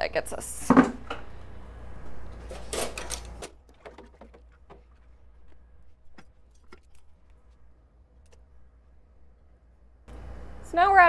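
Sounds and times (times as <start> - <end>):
brewing gear clattering: 2.4 - 7.6.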